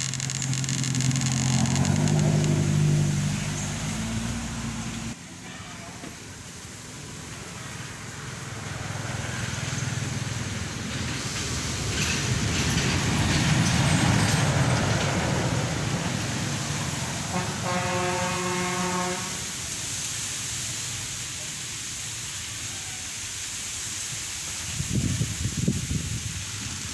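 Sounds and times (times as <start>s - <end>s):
motor vehicle passing: 0.0s - 5.2s.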